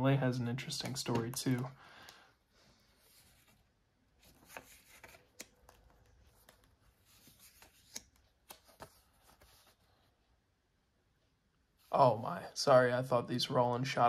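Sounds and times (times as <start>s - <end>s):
paper photos rustling: 2.9s - 10.2s.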